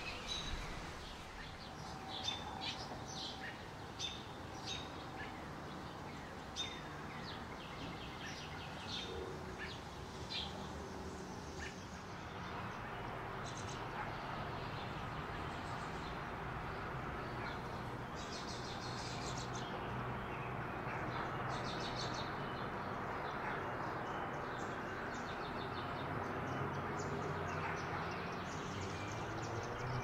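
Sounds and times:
songbirds chirping in trills: 0.0s - 30.0s.

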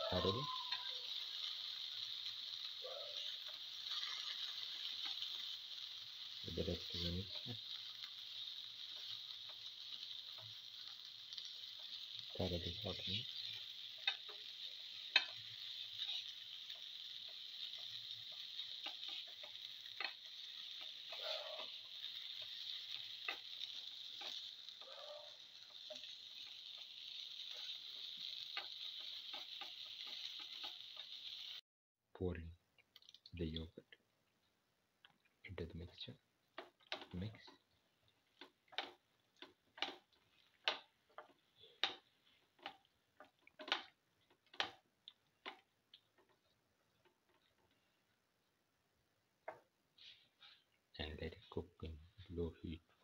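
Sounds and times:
vegetables sizzling in a pan: 0.0s - 31.6s, 35.4s - 53.0s
spatula scraping and tapping pan: 3.2s - 7.0s, 7.7s - 12.3s, 13.2s - 31.5s, 36.5s - 47.9s, 49.4s - 50.8s.

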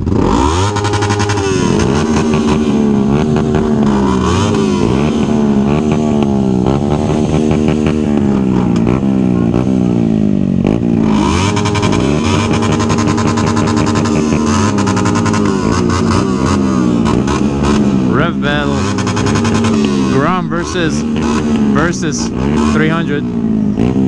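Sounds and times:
motorcycle engine revving hard: 0.0s - 24.0s.

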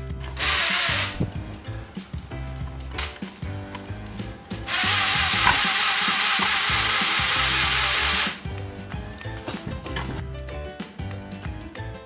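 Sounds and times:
background music: 0.0s - 12.0s
toy helicopter rotors whirring: 0.2s - 9.9s.

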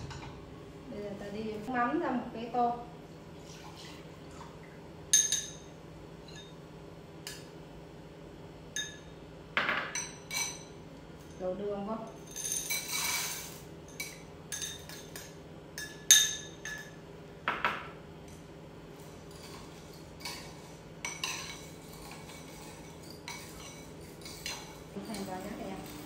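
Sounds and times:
low steady hum: 0.0s - 26.0s
utensils clinking on pot: 5.2s - 6.6s, 8.8s - 11.4s, 12.1s - 17.0s, 19.3s - 26.0s.

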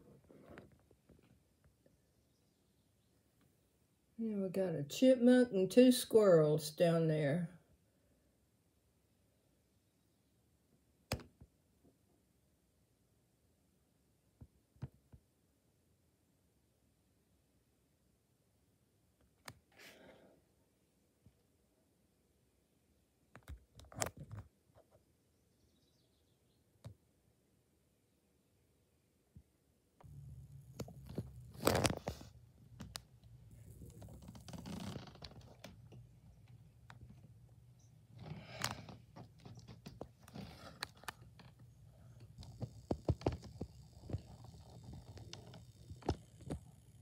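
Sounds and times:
sharp clicks and taps: 11.1s - 11.4s
low hum: 30.0s - 34.7s.

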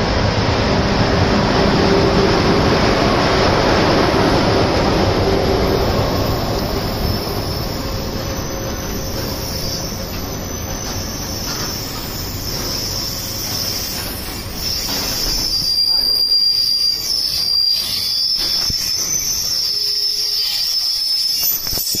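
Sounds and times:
train wheel and rail noise: 0.0s - 22.0s
high thin wheel squeal: 5.6s - 22.0s.

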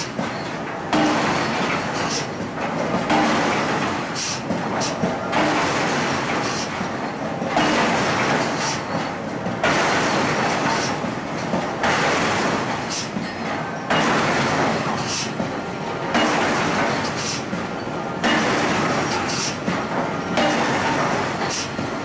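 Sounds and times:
forge machinery rushing noise: 0.0s - 22.0s.

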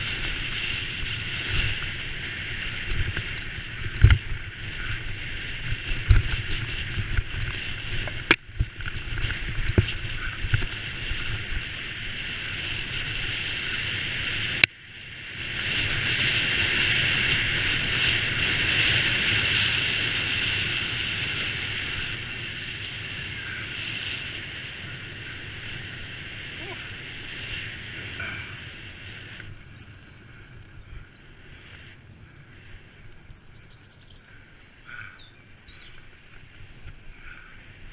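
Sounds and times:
bike knocking and rattling over stones: 0.0s - 14.6s
wind rushing over microphone: 0.0s - 37.9s.

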